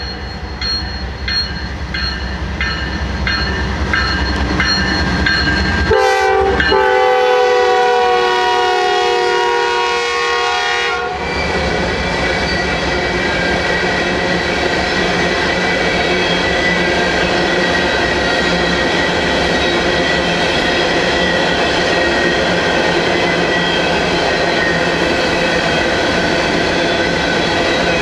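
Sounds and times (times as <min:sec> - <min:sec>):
locomotive bell ringing: 0:00.0 - 0:07.5, 0:12.4 - 0:28.0
train air horn blast: 0:05.9 - 0:11.2
train wheels rolling: 0:11.1 - 0:28.0.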